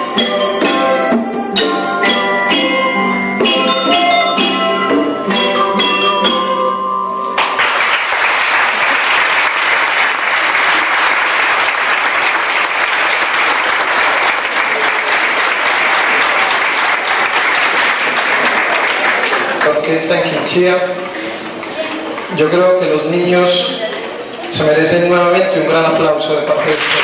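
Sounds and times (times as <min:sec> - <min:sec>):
children's ensemble playing pitched notes: 0:00.0 - 0:08.9
audience applauding: 0:07.4 - 0:19.9, 0:26.5 - 0:27.0.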